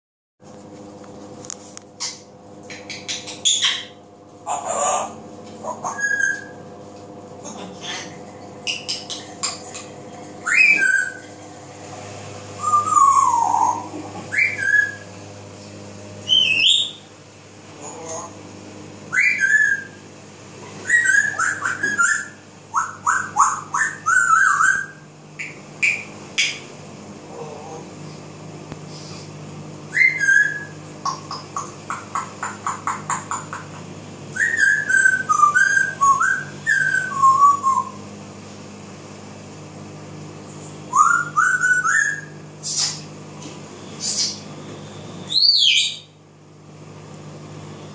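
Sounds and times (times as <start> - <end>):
steady low hum: 0.4 - 47.9
parrot whistling and calling: 2.0 - 6.6, 7.8 - 11.3, 12.6 - 15.1, 16.2 - 17.1, 19.1 - 20.0, 20.8 - 26.7, 29.9 - 33.7, 34.3 - 38.0, 40.9 - 43.1, 44.0 - 44.4, 45.3 - 46.2.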